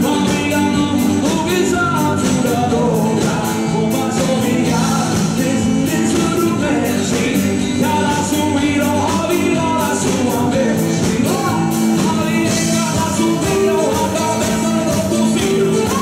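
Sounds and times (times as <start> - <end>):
people singing into microphones: 0.0 - 16.0
steady drum beat: 0.0 - 16.0.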